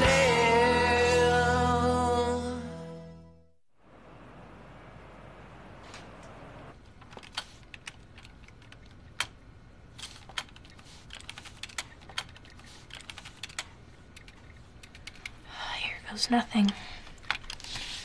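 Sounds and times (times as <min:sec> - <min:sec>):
keyboard typing: 0:07.0 - 0:09.4, 0:10.0 - 0:15.4.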